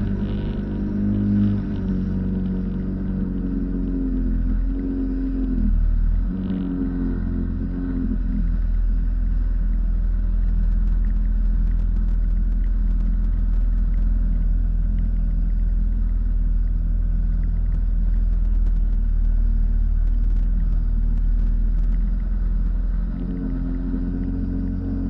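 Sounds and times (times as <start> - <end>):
jet ski engine running: 0.0 - 25.0.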